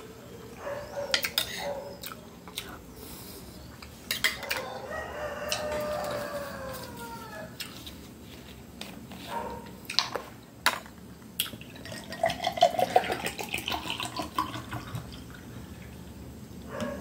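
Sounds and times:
juice pouring into a glass: 0:11.6 - 0:16.0.

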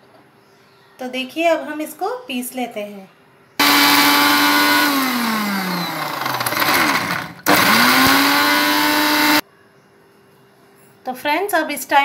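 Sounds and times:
mixer grinder motor whine: 0:03.6 - 0:09.4.

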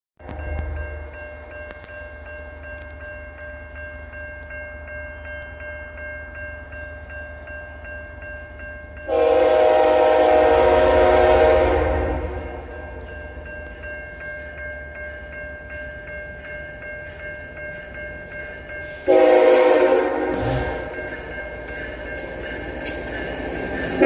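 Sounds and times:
crossing signal bell ringing: 0:00.2 - 0:24.0
locomotive air horn blast: 0:09.1 - 0:12.7, 0:19.0 - 0:21.0.

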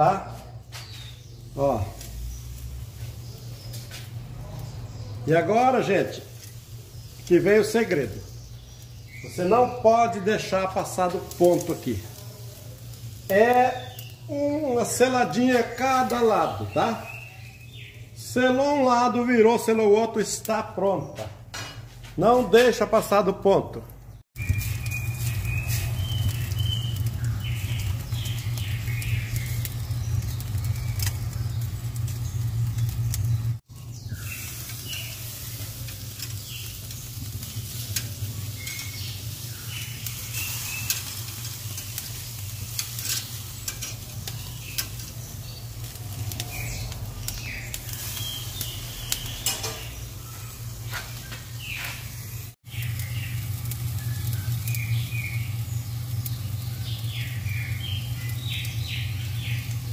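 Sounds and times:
fat crackling: 0:00.0 - 0:18.6, 0:23.8 - 0:59.9
meat sizzling on a grill: 0:00.0 - 0:18.6, 0:24.4 - 0:59.9
low hum: 0:24.4 - 0:34.8.

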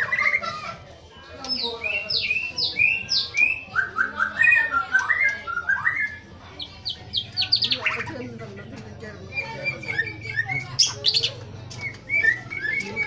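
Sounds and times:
bird singing whistled song: 0:01.6 - 0:08.0, 0:09.3 - 0:13.0.

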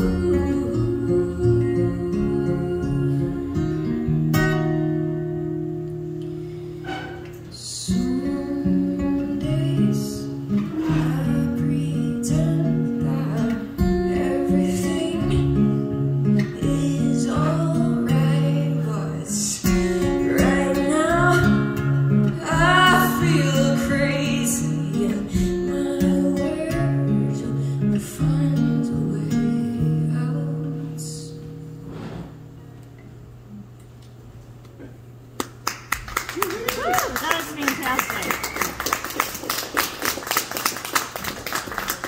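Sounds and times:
woman singing: 0:00.0 - 0:04.2, 0:07.5 - 0:31.5
acoustic guitar picking: 0:00.0 - 0:35.3.

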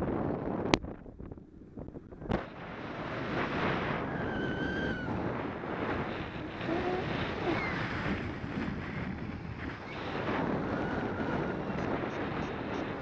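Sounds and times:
wind rushing over microphone: 0:00.0 - 0:13.0
faint wavering whistle: 0:06.8 - 0:07.8.

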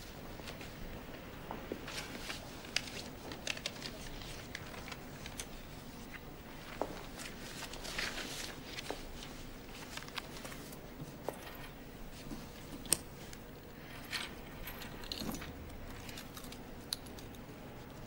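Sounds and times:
paper sheets rustling: 0:00.4 - 0:14.0.

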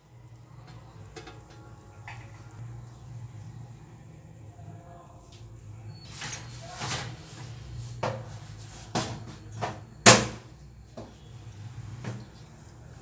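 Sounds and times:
low steady hum: 0:00.0 - 0:06.4.

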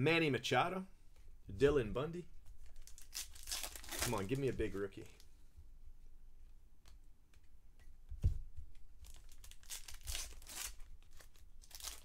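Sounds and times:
foil wrapper crinkling and tearing: 0:02.6 - 0:04.8, 0:09.0 - 0:12.0
thump: 0:08.1 - 0:08.5.

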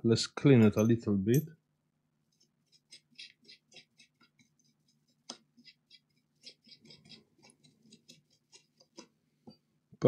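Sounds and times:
small brush scrubbing circuit board: 0:02.2 - 0:09.2.

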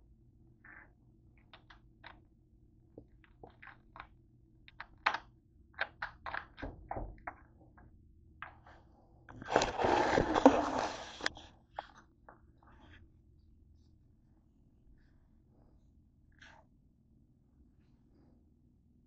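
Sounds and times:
camera handling rustling: 0:09.4 - 0:11.5.

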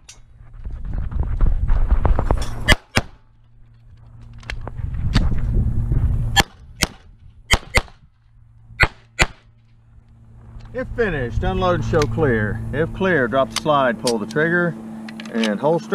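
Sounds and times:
low rumbling of shooter moving: 0:00.0 - 0:13.7
pistol shots: 0:06.4 - 0:08.0, 0:08.8 - 0:09.4.

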